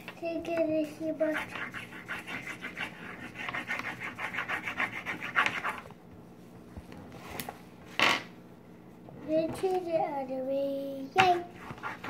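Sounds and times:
crayon scribbling on paper: 1.2s - 5.8s, 11.5s - 12.0s.

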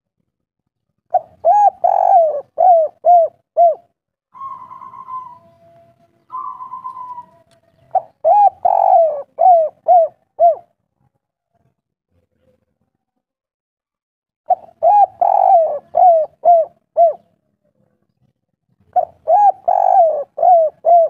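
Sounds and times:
dove cooing: 1.1s - 10.7s, 14.5s - 17.3s, 18.9s - 21.0s.

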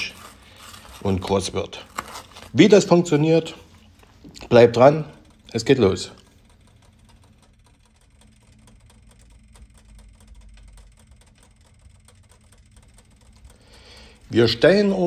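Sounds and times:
low steady hum: 0.0s - 15.0s
faint ticks: 6.2s - 14.4s.

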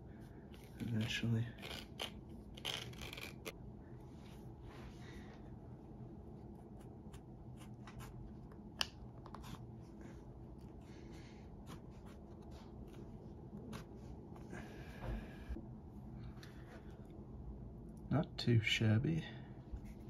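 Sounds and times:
knife cutting leather: 0.6s - 3.5s.

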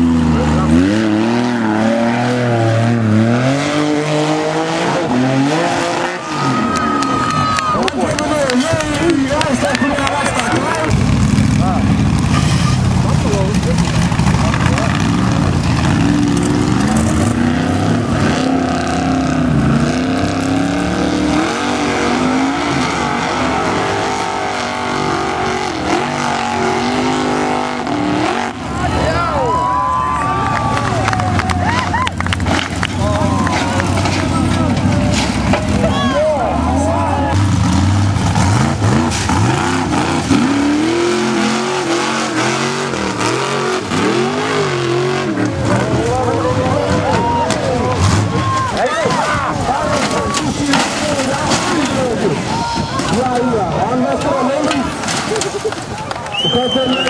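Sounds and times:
buggy engine revving hard: 0.0s - 29.4s, 30.3s - 52.5s.

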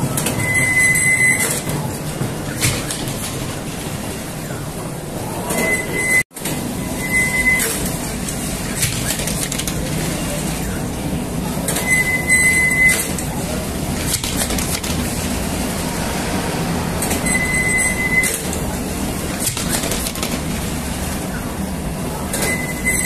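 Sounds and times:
bakery machinery rumbling: 0.0s - 23.0s
high squeal: 6.8s - 7.8s, 17.0s - 18.5s.

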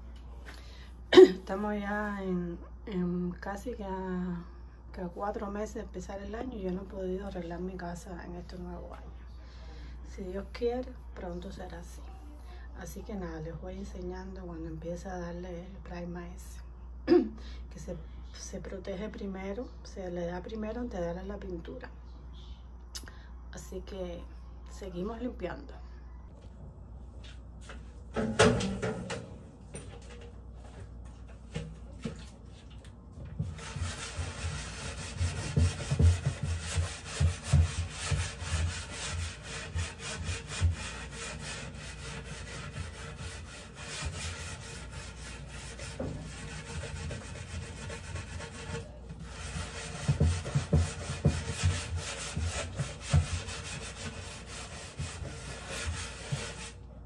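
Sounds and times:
scrubbing wooden cabinet door: 31.1s - 56.8s.

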